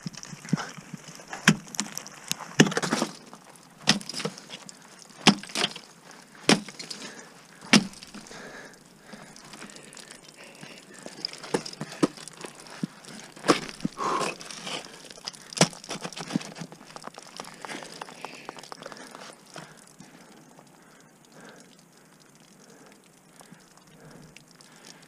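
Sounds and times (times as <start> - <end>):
ice tools striking ice: 1.3 - 4.6, 5.2 - 8.3, 11.0 - 19.2.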